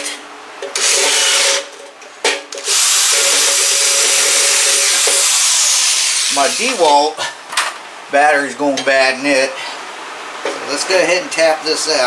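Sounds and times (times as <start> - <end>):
electric drill boring into metal: 0.7 - 1.7, 2.6 - 6.9.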